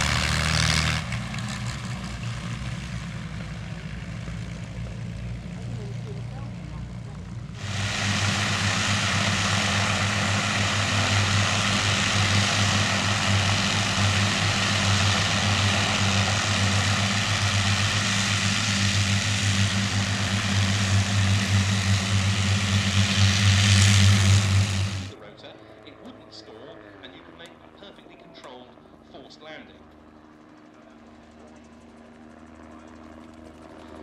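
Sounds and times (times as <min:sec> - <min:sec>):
aircraft engines droning: 0:00.0 - 0:34.0.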